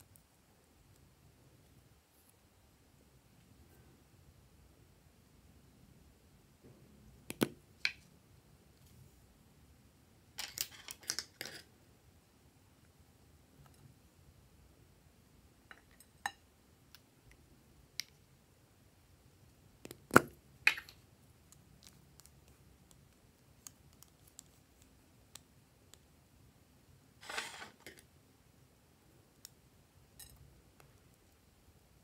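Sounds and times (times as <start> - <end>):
short scraping rustle: 27.2 - 27.8.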